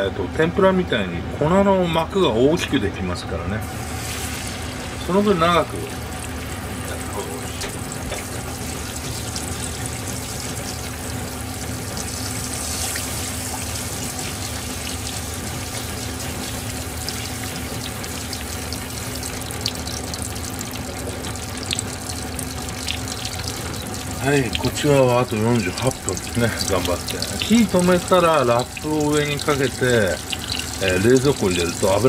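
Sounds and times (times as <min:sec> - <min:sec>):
fish sizzling in oil: 0:03.6 - 0:32.0.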